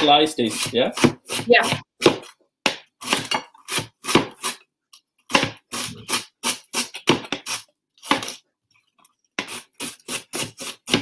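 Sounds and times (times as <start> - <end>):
knife chopping cabbage on board: 0.5 - 4.6, 9.4 - 11.0.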